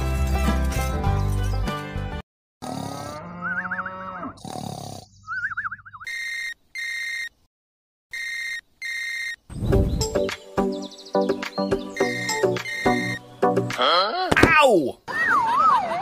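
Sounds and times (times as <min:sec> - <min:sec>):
cartoon snoring with whistle: 0:02.6 - 0:05.8.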